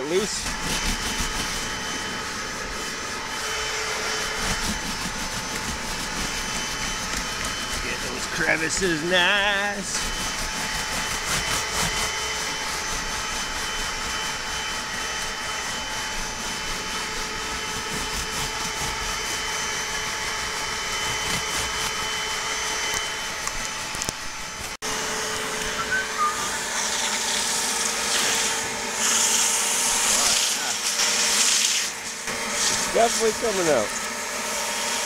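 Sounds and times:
upholstery cleaner whining: 0.0s - 35.0s
brush scrubbing fabric: 0.2s - 22.0s, 26.7s - 33.8s.

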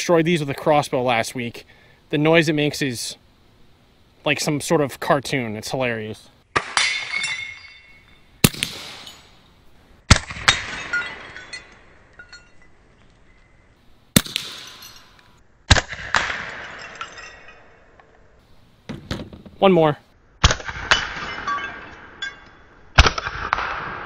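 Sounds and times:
plate shattering: 6.6s - 9.5s, 10.3s - 12.8s, 14.3s - 15.4s, 16.3s - 17.8s, 20.9s - 22.6s
pieces clinking and ringing: 6.8s - 9.6s, 10.5s - 13.7s, 14.4s - 15.4s, 16.5s - 18.1s, 21.3s - 22.7s
air pistol shots: 8.4s - 9.2s, 14.2s - 14.8s, 15.7s - 16.6s.

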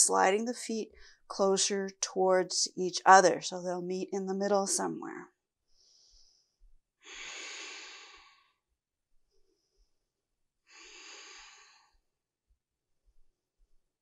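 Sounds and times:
woman breathing slowly: 0.9s - 1.3s, 5.7s - 8.7s, 10.6s - 12.1s.

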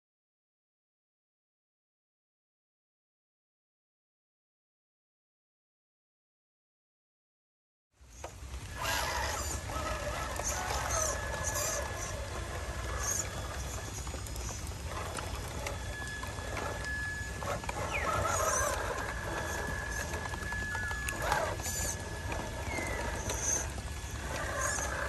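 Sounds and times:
birds calling and chattering: 8.0s - 25.0s
thin high whine: 8.7s - 25.0s.

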